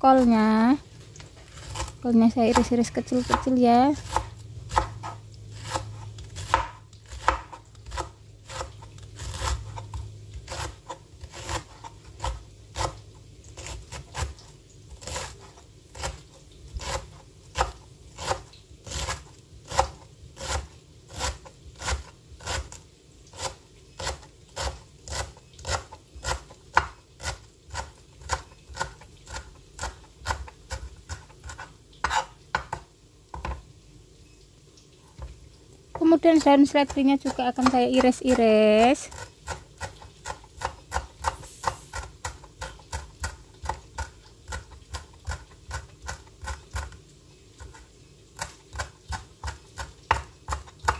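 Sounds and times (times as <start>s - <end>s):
knife chopping on plastic board: 1.5s - 9.8s, 39.1s - 47.0s, 48.4s - 50.9s.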